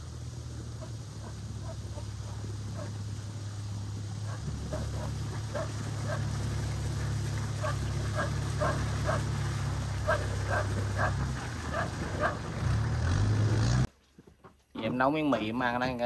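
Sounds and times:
steady low hum: 0.0 - 12.6
dog yapping: 0.8 - 3.0, 4.3 - 6.3, 7.6 - 9.3, 10.0 - 12.4.

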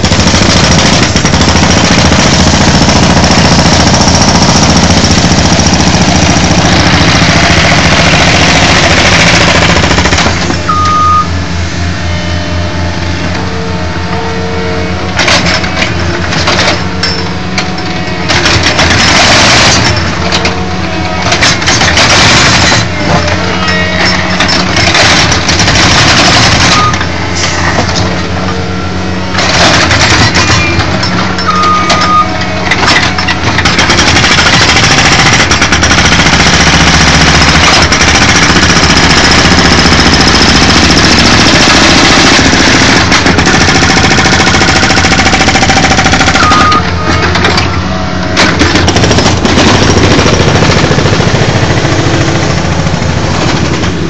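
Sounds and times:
hydraulic breaker hammering concrete: 0.0 - 10.8, 15.2 - 28.4, 29.3 - 54.0
loader engine running: 0.0 - 54.0
brief beep: 10.7 - 11.4, 31.4 - 32.4, 46.4 - 47.3.

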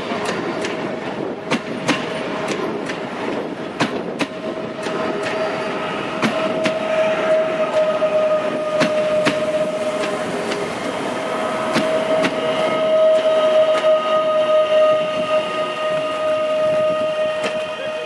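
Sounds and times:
wheels clicking over rail joints: 0.0 - 14.0
electric train whine: 0.0 - 18.0.

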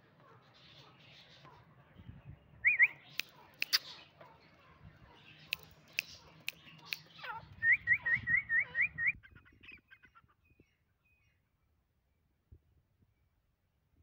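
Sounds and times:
bird whistled calls: 2.6 - 4.0, 6.0 - 9.9
sharp clicks: 3.1 - 3.9, 5.5 - 7.2.

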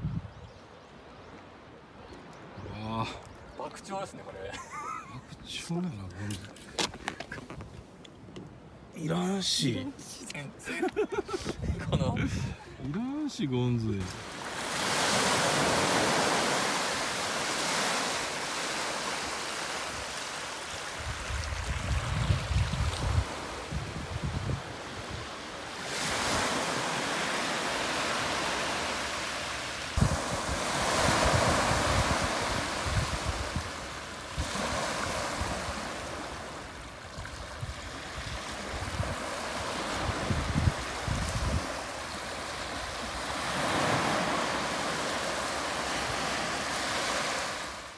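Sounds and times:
wind buffeting microphone: 0.0 - 0.6, 11.3 - 13.0, 21.0 - 25.3, 30.0 - 35.8, 37.2 - 41.8
small waves washing on sand: 13.2 - 47.9.

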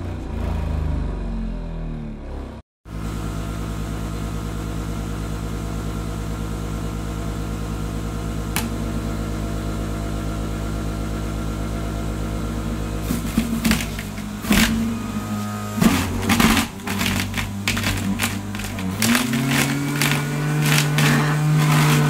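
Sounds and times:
juicer motor humming: 12.5 - 22.0
juicer grinding carrot: 13.0 - 22.0.

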